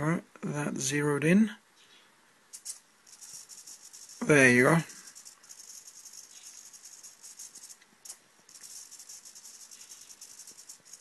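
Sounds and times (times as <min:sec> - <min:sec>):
servo motor rattling buzz: 0:02.6 - 0:11.0.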